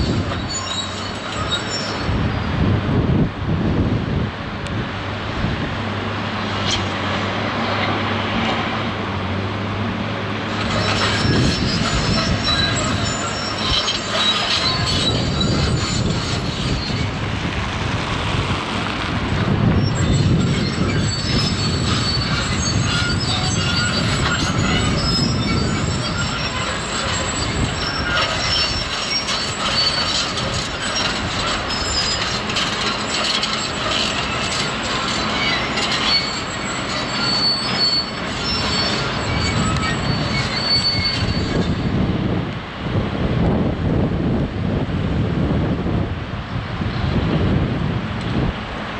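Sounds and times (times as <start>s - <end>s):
high-pitched metal squealing and scraping: 0.0s - 2.6s, 10.5s - 17.4s, 19.7s - 41.9s.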